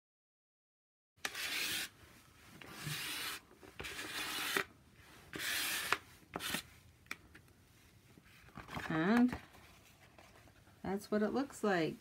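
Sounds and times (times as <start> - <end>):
rasping scraping across paper: 1.3 - 1.9, 2.7 - 4.7, 5.3 - 6.6.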